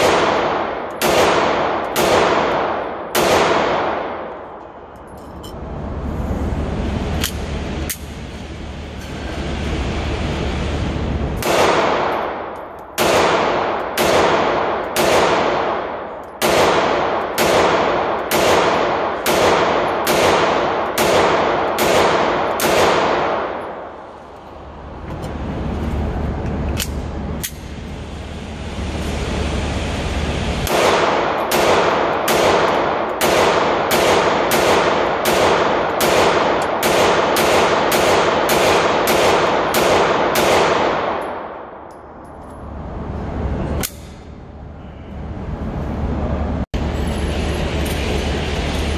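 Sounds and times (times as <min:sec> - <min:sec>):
pistol shots echoing indoors: 0:00.0 - 0:05.0, 0:11.4 - 0:24.3, 0:30.6 - 0:42.8
steady low hum: 0:00.0 - 0:48.9.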